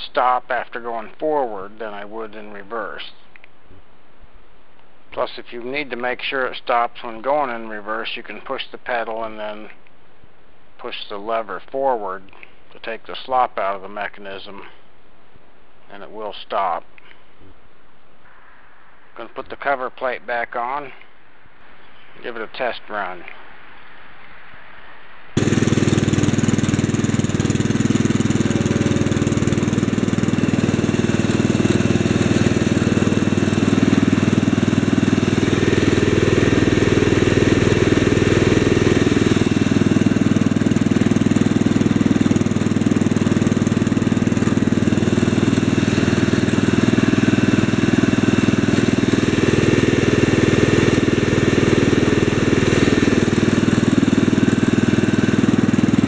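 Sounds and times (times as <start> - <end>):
garden tractor engine running: 25.4 - 56.0.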